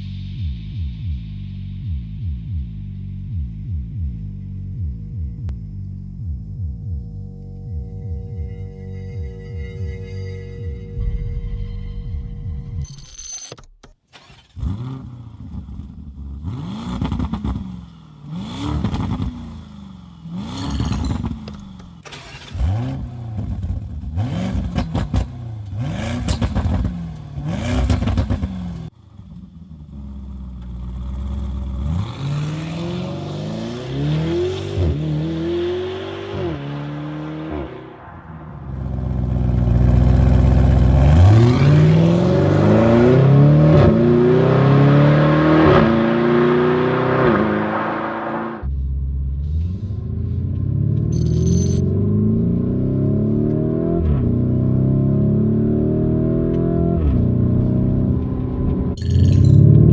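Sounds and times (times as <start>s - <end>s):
car engine starting: 11.0s - 59.9s
car engine revving: 14.1s - 59.9s
car accelerating hard: 29.9s - 48.7s.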